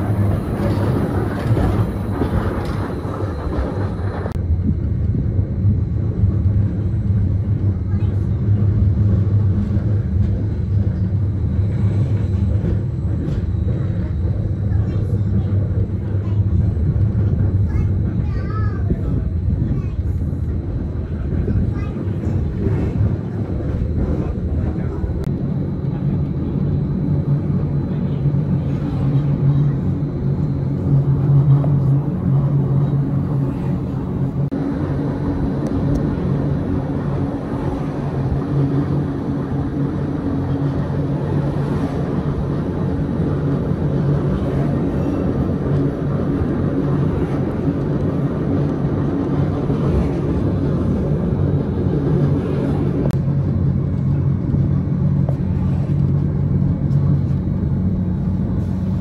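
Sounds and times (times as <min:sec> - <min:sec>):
running gear rumbling: 0:00.0 - 0:59.0
train drive humming: 0:00.0 - 0:59.0.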